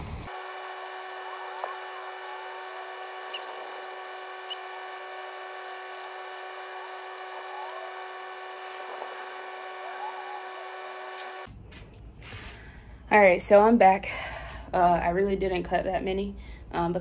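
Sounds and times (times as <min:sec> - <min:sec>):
high-pitched machine whine: 0:00.0 - 0:11.5.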